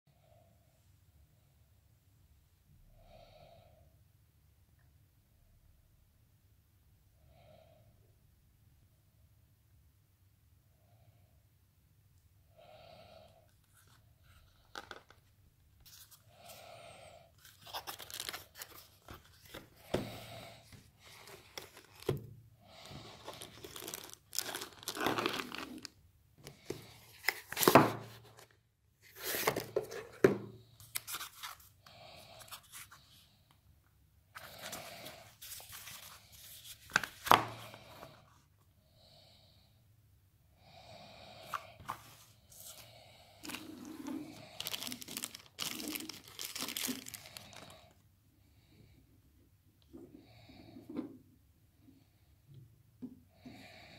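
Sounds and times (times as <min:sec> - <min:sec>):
packaging crinkling and tearing: 0:17.4 - 0:19.7, 0:21.1 - 0:22.1, 0:22.9 - 0:26.0, 0:43.4 - 0:47.9.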